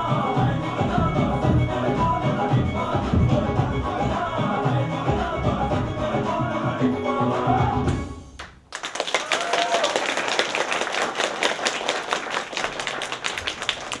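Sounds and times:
dance music: 0:00.0 - 0:08.2
audience applause: 0:08.7 - 0:14.0.

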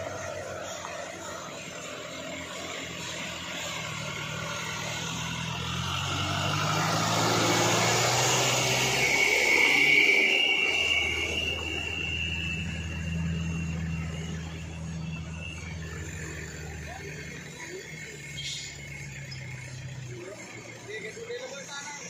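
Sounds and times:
high whine: 0:00.0 - 0:20.4
diesel truck engine passing: 0:00.0 - 0:22.0.

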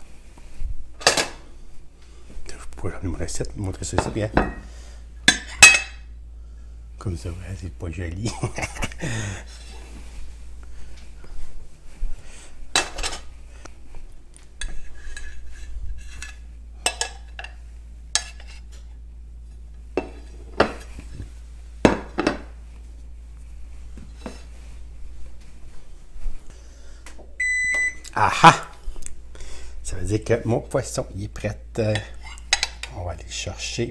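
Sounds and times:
dishes knocking and clinking: 0:04.0 - 0:04.6, 0:05.2 - 0:06.0, 0:16.8 - 0:17.6, 0:20.0 - 0:20.9, 0:21.8 - 0:22.5.

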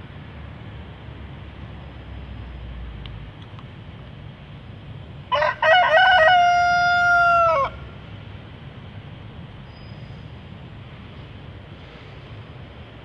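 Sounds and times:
rooster crowing: 0:05.3 - 0:07.9.

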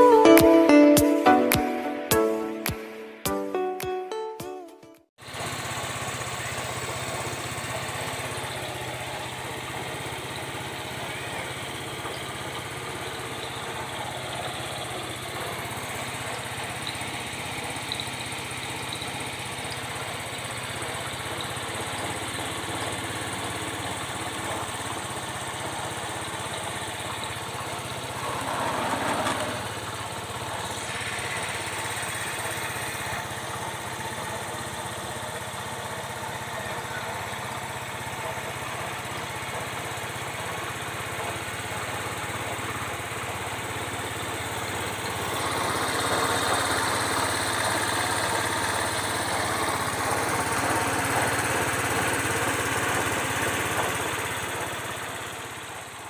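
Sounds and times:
motorcycle engine idling: 0:05.2 - 0:56.0.

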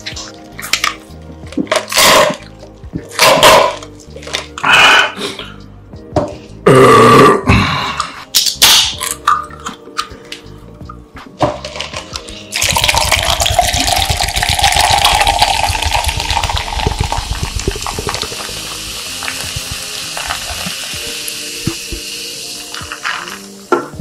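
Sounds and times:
soda pouring and fizzing: 0:12.5 - 0:23.7.

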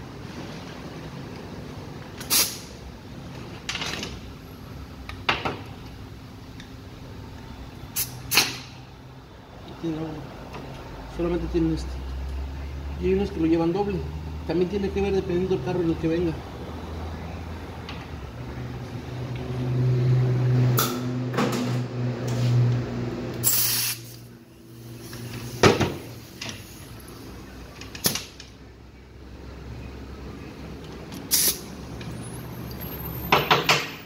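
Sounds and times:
short hiss: 0:02.2 - 0:02.7, 0:23.4 - 0:24.2, 0:31.3 - 0:31.6.

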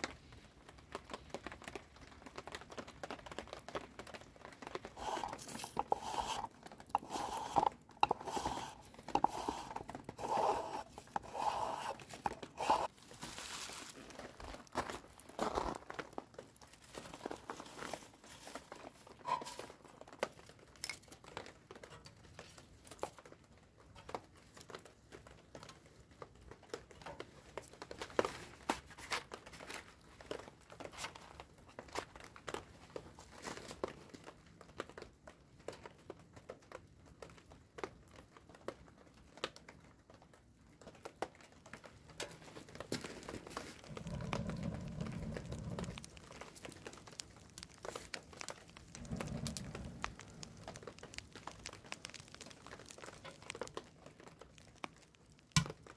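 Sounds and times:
dry kindling crinkling and rustling: 0:00.0 - 0:55.9
fire flaring with low rushing: 0:43.8 - 0:55.5.

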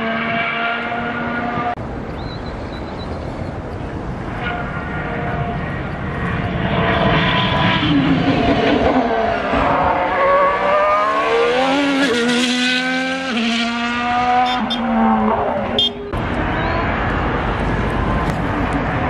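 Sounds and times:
racing car engine passing by: 0:04.2 - 0:19.0.

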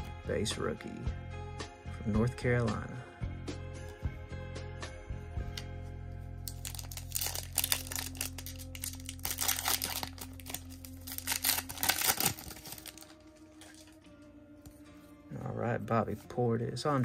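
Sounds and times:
foil wrapper crinkling and tearing: 0:06.5 - 0:14.0.

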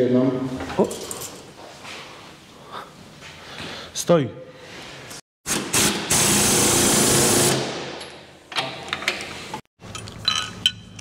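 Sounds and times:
spanner clinking on bolts: 0:09.8 - 0:11.0.

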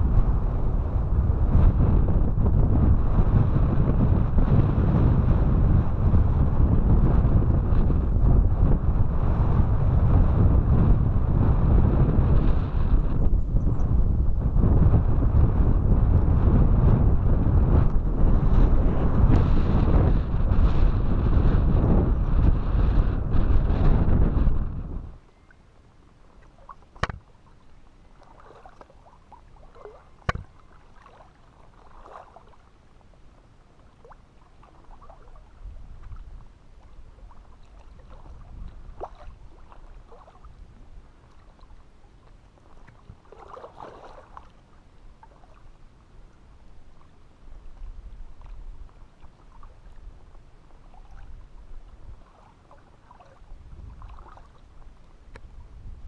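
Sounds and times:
wind rumble on microphone: 0:00.0 - 0:56.0
waves lapping against rocks: 0:26.2 - 0:45.8, 0:46.9 - 0:55.5.

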